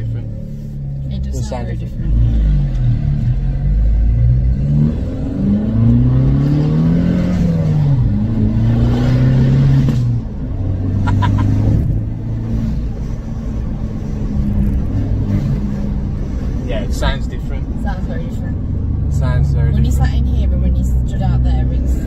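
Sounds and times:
car engine accelerating: 0.0 - 22.0.

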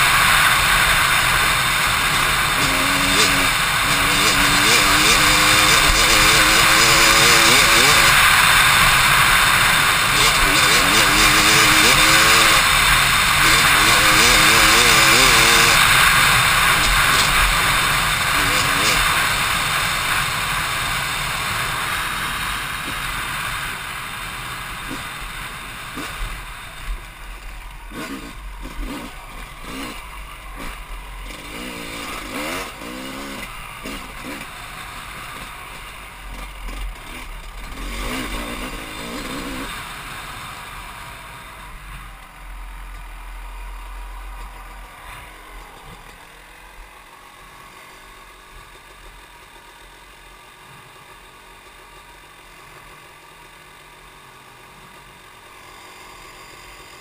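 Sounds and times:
dirt bike engine revving: 0.0 - 49.9.

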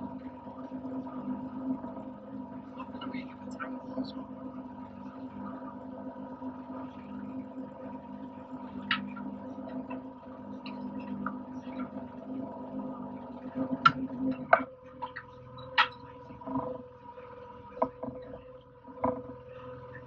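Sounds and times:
boat motor humming: 0.0 - 20.0
light clicks and knocks: 17.8 - 19.6.

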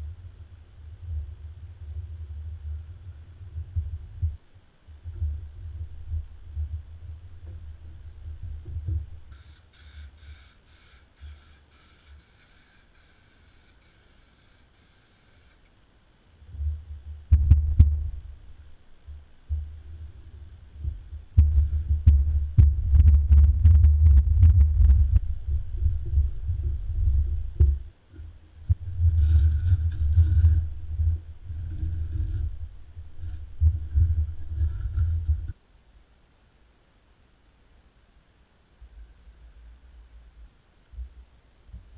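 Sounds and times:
dull low thuds: 5.0 - 9.3, 16.5 - 18.4, 20.8 - 27.9, 28.6 - 35.6
aerosol can spraying: 9.3 - 15.7.

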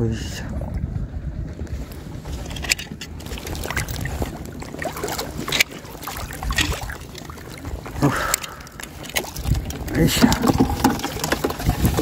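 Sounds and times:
low wind rumble on microphone: 0.0 - 12.0
shallow seawater sloshing: 1.7 - 12.0
sharp water splash: 3.2 - 7.6.

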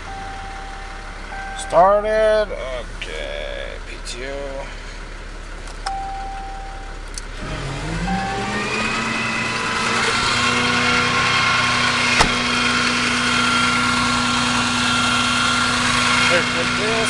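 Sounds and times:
short dash beep: 0.0 - 2.3, 5.8 - 7.0, 7.9 - 10.4
truck engine revving up: 7.3 - 17.0.

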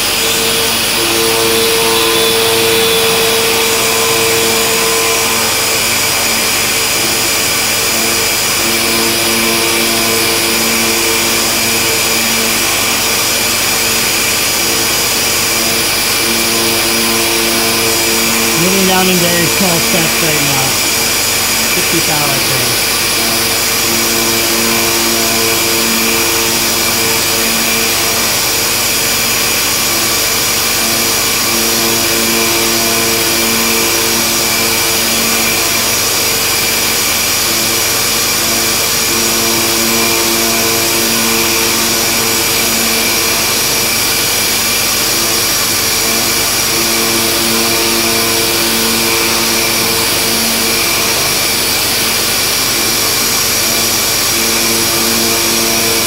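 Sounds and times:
multi-tone machine hum: 0.0 - 28.4.

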